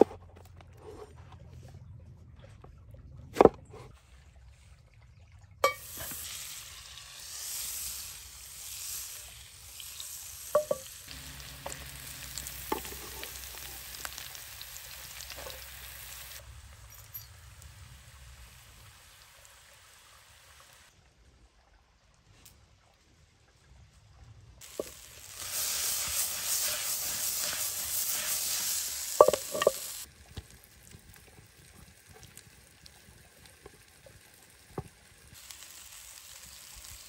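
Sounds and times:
vegetables sizzling in oil: 5.6 - 20.9, 24.6 - 32.6, 34.0 - 37.0
stirring knocks in skillet: 29.2 - 29.9.

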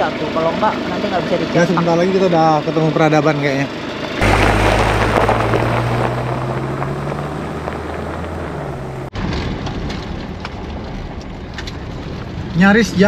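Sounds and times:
car engine drone: 3.8 - 9.2
tyre and road noise: 4.1 - 12.6
tyres and wind rushing: 4.2 - 12.5.

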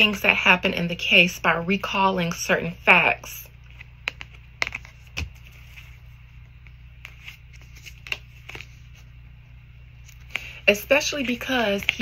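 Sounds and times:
steady low hum: 0.0 - 12.0
cards clicking and tapping: 3.7 - 5.5, 7.0 - 8.7, 11.2 - 12.0.

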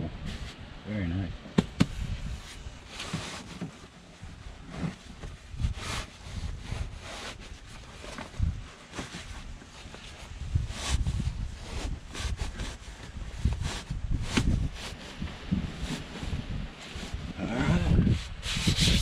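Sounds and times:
dull knocks against seat: 1.6 - 2.0
fabric seat cover rustling: 1.6 - 17.4.

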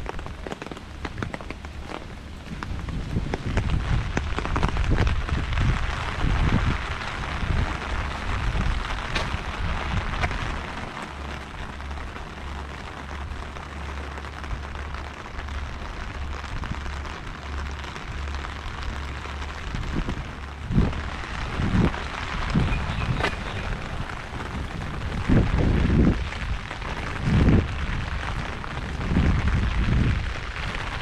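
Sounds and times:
low bumps: 0.0 - 31.0
low rumble: 0.0 - 31.0
rain on wet tarmac: 0.0 - 31.0.

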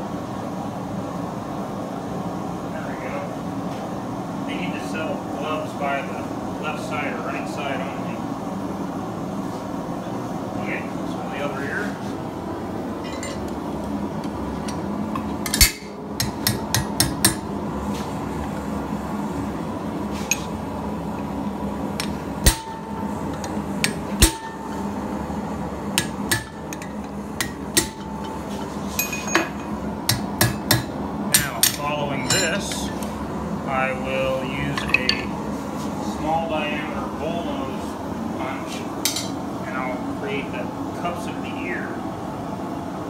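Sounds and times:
steady background hum: 0.0 - 43.0
hammer striking punch on steel: 22.0 - 23.0, 23.8 - 24.7, 26.0 - 26.7, 27.4 - 28.1, 29.1 - 32.5.

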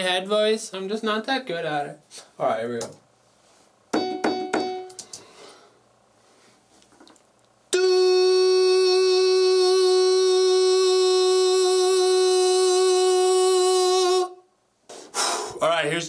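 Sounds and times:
man singing a held note: 7.7 - 14.4.

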